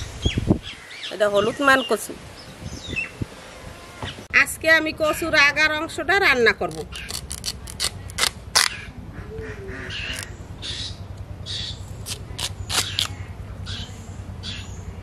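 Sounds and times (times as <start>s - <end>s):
blade slicing root: 6.7s - 8.8s, 11.9s - 13.2s.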